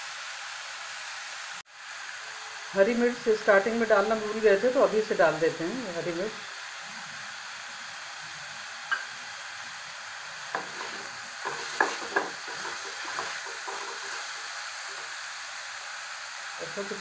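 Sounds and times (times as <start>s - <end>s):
vegetables sizzling in oil: 0.0s - 17.0s
spatula scraping pan: 10.5s - 15.2s.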